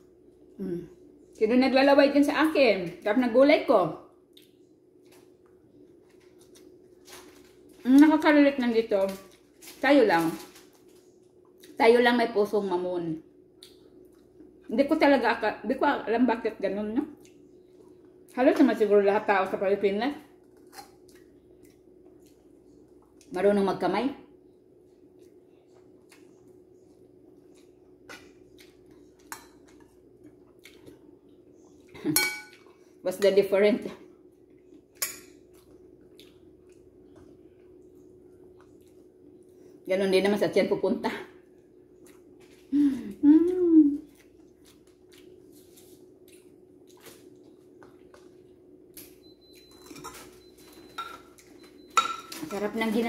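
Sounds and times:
faint steady hum: 0.0s - 53.0s
wet squishes of eating by hand: 4.2s - 8.2s, 8.9s - 9.8s, 20.3s - 23.3s, 24.8s - 33.0s, 34.2s - 39.9s, 41.4s - 51.8s.

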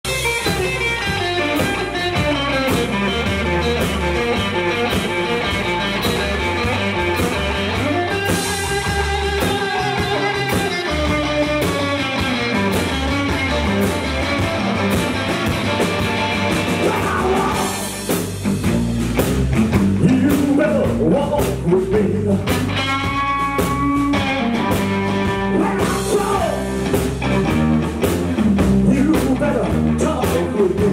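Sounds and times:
drum kit: 0.0s - 30.9s
electric bass: 0.0s - 30.9s
electric guitar: 0.0s - 30.9s
man singing: 16.8s - 17.9s, 20.0s - 22.7s, 25.5s - 26.8s, 28.8s - 30.9s.

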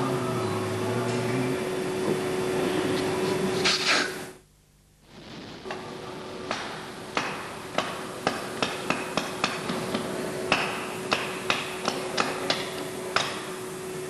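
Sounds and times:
steady hum: 0.0s - 14.0s
hammer tapping on metal: 6.5s - 13.5s.

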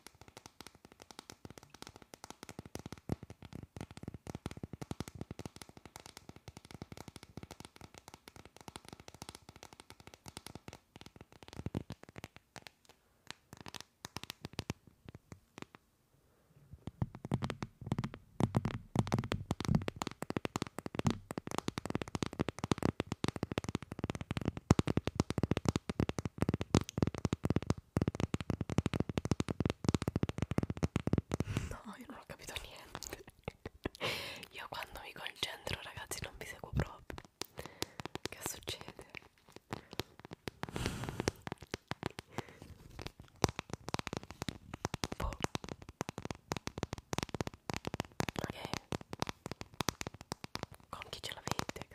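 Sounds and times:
fingernails tapping on phone case: 16.9s - 31.7s.

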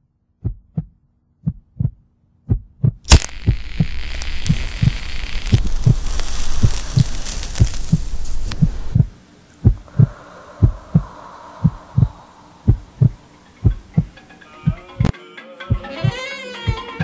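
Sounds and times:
heartbeat thumps: 0.4s - 15.1s, 15.7s - 17.0s
loud steady hiss: 3.1s - 14.8s
faint hum: 3.1s - 15.1s.

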